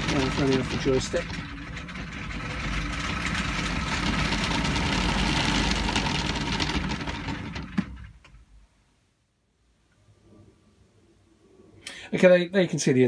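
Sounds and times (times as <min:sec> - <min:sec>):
robot drive motor running: 0:00.0 - 0:07.8.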